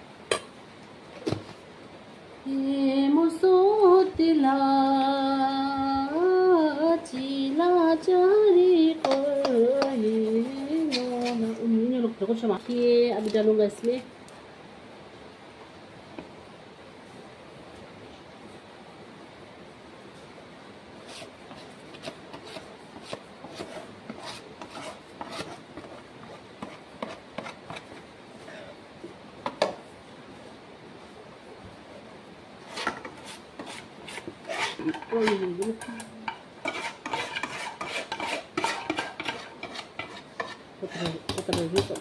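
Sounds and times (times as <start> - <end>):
spoon scraping metal bowl: 9.0 - 11.6, 32.7 - 42.0.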